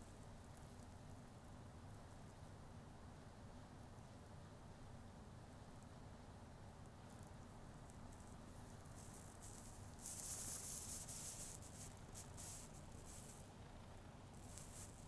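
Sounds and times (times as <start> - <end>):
cat fur rubbing on stubble: 8.0 - 13.5, 14.3 - 15.0.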